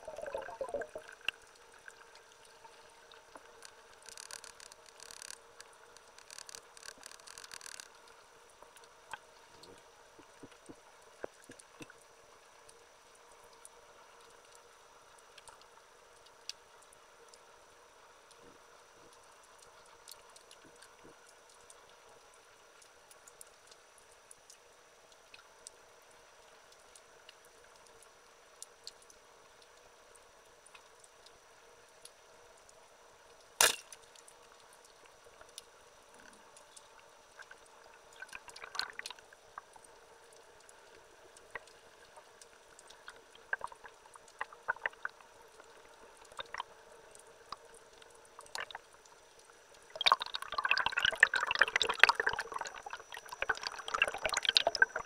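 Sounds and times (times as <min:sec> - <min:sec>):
faint steady hiss: 0:00.0 - 0:55.0
small clicks and crackles: 0:00.0 - 0:55.0
sharp loud click: 0:33.6 - 0:34.0.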